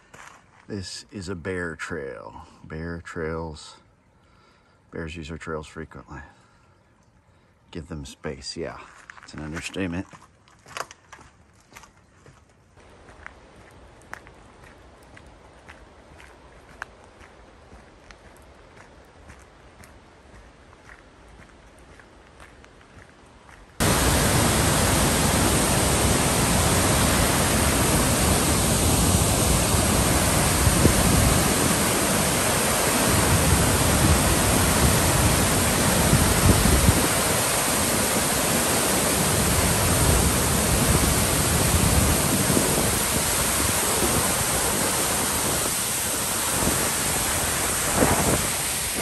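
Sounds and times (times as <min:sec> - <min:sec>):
waterfall pouring onto rocks: 0:23.8 - 0:49.0.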